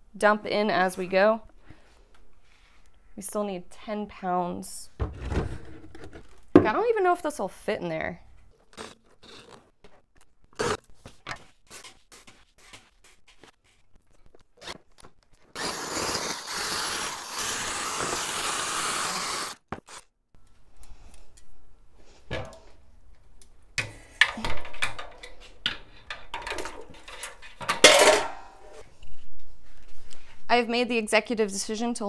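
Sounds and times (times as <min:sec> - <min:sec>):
drill driving grain mill: 0:15.6 - 0:19.6.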